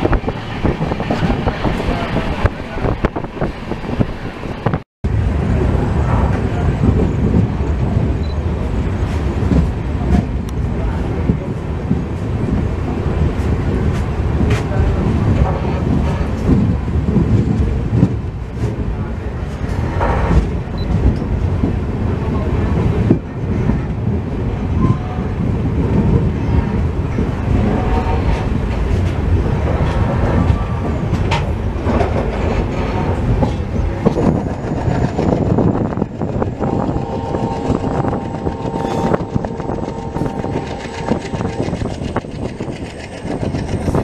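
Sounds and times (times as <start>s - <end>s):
clicks and knocks of train: 0.0s - 44.0s
train wheels rumbling on rails: 0.0s - 44.0s
steady tone: 34.5s - 44.0s.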